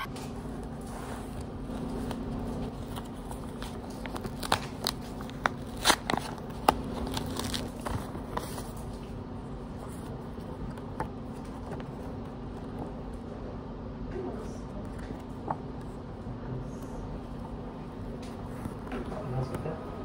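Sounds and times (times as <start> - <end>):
paper crackling and rustling: 0.0 - 12.8
steady low hum: 0.0 - 20.0.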